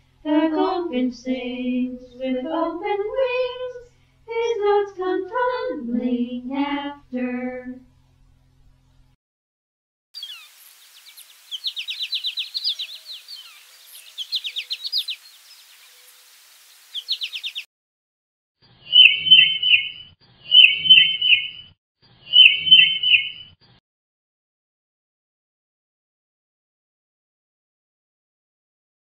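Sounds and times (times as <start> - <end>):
goldfinch twittering song: 10.2 - 17.6, 18.9 - 20.0, 20.6 - 21.6, 22.3 - 23.5
titmouse whistling song: 11.1 - 15.6, 16.9 - 17.6, 18.9 - 21.7, 22.3 - 23.6.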